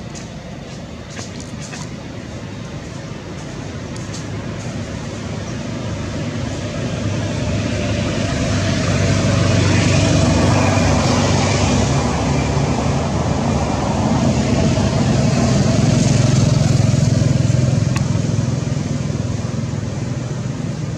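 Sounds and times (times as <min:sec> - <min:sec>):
traffic passing: 0:00.0 - 0:20.9.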